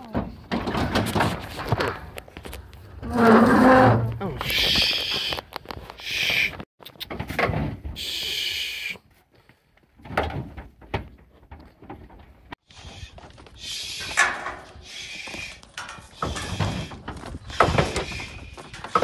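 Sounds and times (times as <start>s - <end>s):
knocks and bangs from calves: 10.0s - 12.6s, 15.4s - 19.0s.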